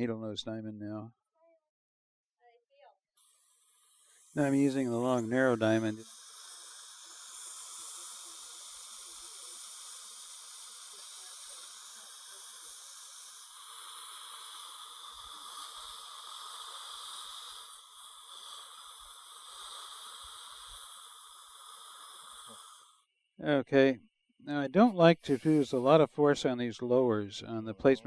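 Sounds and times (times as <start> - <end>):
dental drill high hiss: 3.2 - 23.0, 25.0 - 26.0.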